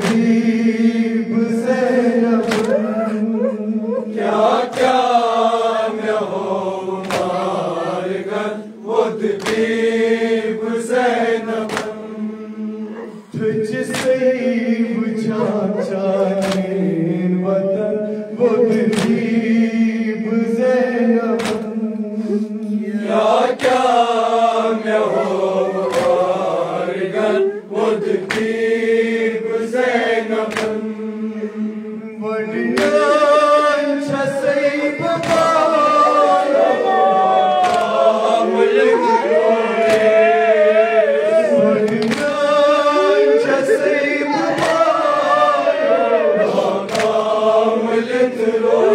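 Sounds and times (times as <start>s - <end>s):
hand slaps on chest: 0.0s - 0.3s, 2.4s - 2.8s, 4.7s - 5.0s, 7.0s - 7.4s, 9.4s - 9.7s, 11.6s - 12.0s, 13.9s - 14.2s, 16.4s - 16.8s, 18.9s - 19.2s, 21.4s - 21.8s, 25.9s - 26.3s, 28.2s - 28.6s, 30.5s - 30.8s, 35.2s - 35.6s, 37.6s - 38.0s, 39.8s - 40.2s, 41.9s - 42.4s, 44.5s - 44.9s, 46.9s - 47.2s
man singing a lament into a microphone: 0.0s - 9.2s, 9.8s - 28.1s, 28.9s - 36.5s, 38.2s - 46.9s, 47.5s - 48.9s
men chanting along: 0.0s - 48.9s.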